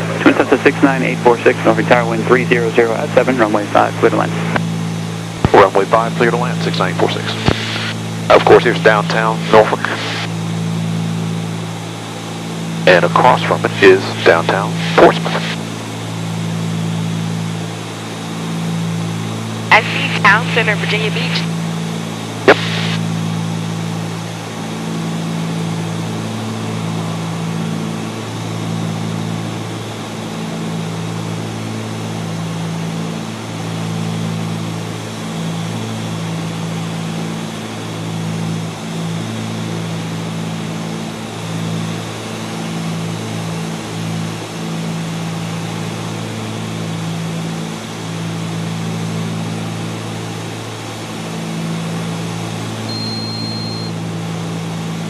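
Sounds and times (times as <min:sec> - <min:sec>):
aircraft engines and propellers droning: 0:00.0 - 0:55.0
thin high tone: 0:52.9 - 0:54.0.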